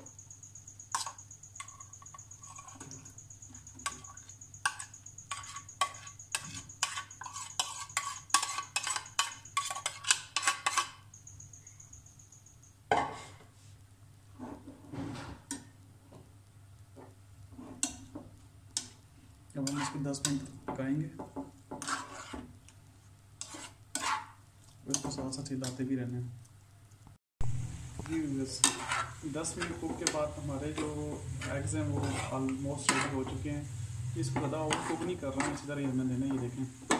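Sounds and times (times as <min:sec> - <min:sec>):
metal spoon clinking on pan: 0:00.1 - 0:13.3, 0:28.5 - 0:31.2, 0:34.4 - 0:36.9.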